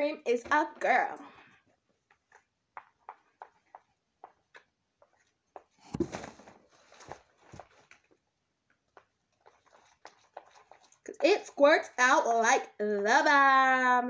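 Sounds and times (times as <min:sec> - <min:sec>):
rustling handling noise: 0:05.1 - 0:11.2.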